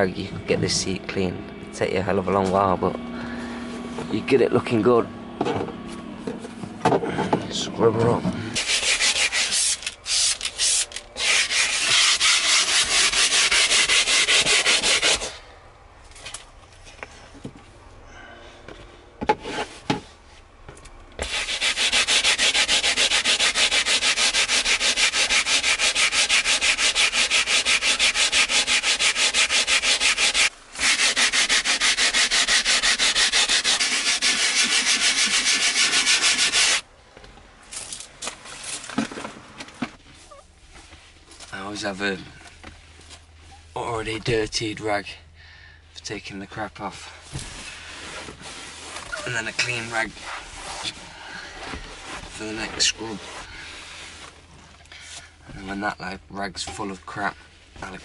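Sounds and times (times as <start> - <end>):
brush scrubbing wet leather: 8.6 - 15.4, 21.2 - 36.8, 47.9 - 51.0.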